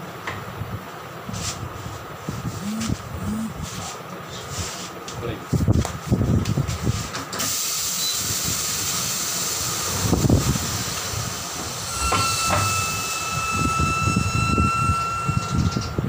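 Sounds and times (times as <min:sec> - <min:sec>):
compressed air hissing into tyre: 0:07.4 - 0:13.2
thin steady whistle: 0:07.9 - 0:08.4, 0:11.7 - 0:16.0.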